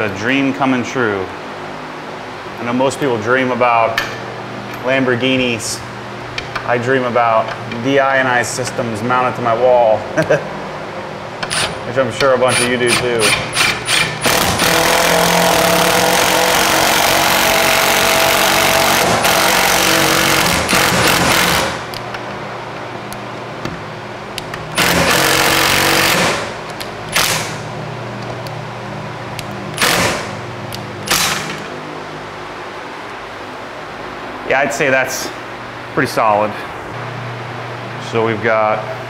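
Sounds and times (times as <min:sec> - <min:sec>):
impact driver running: 0:12.5 - 0:22.0, 0:24.7 - 0:27.7, 0:29.8 - 0:30.4, 0:31.0 - 0:31.7.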